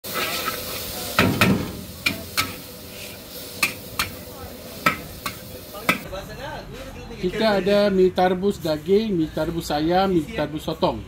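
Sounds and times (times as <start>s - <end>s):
metal spatula scraping a wok: 0.0s - 4.2s
noodles sizzling: 0.0s - 6.1s.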